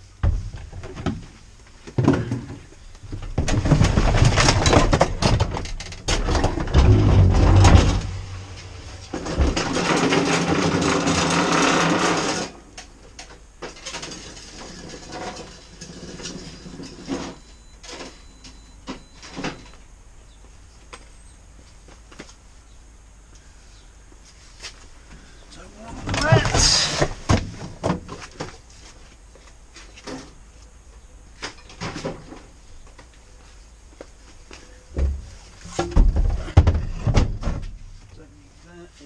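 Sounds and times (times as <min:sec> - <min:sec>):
garden equipment clattering and scraping: 0:00.3 - 0:18.4, 0:25.7 - 0:29.1, 0:29.7 - 0:30.4, 0:31.4 - 0:32.6
rumbling: 0:02.0 - 0:12.6.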